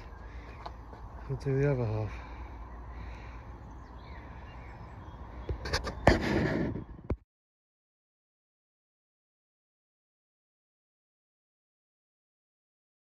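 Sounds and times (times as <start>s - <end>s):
low outdoor rumble: 0.0s - 7.2s
rustling noise: 5.6s - 7.2s.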